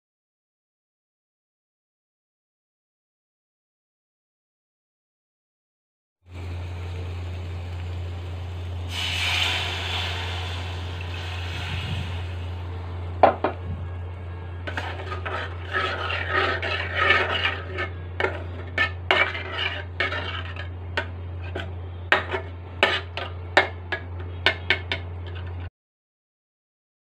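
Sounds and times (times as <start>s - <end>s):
water sizzling in hot pan: 6.3s - 12.6s
low hum: 6.3s - 25.7s
ladle scraping metal pan: 14.6s - 25.7s.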